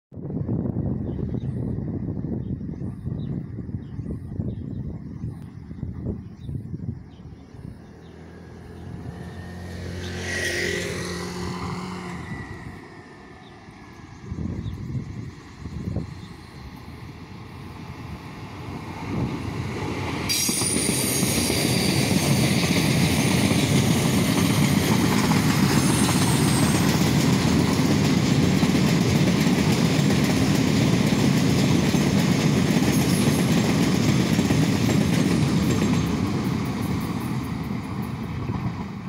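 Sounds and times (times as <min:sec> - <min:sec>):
freight train wheels rumbling: 0:00.3 - 0:39.0
high wheel squeal: 0:20.3 - 0:23.2, 0:25.5 - 0:27.2.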